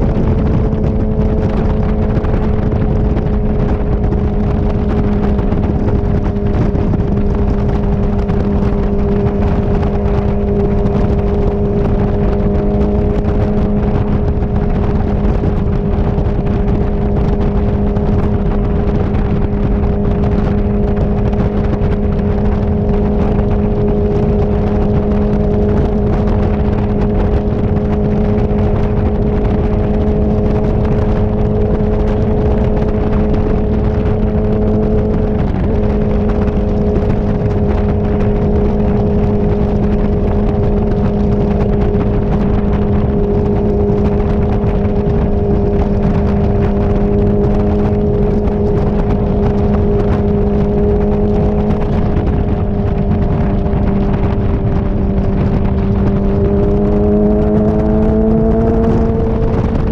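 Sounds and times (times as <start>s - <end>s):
motorcycle engine cruising: 0.0s - 59.9s
wind rush on microphone: 0.0s - 59.9s.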